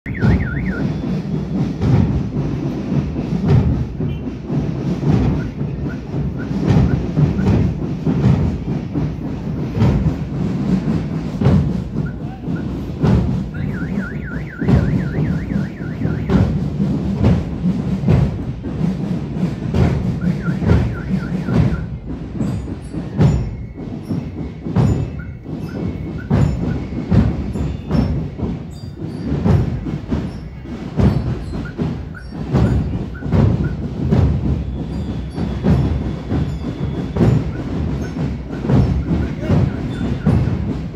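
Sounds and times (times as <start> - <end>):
high repeated bugle notes: 0.0 - 2.0, 10.4 - 18.4, 20.0 - 40.9
drum and bugle marching band: 0.0 - 40.9
drums beating: 0.0 - 40.9.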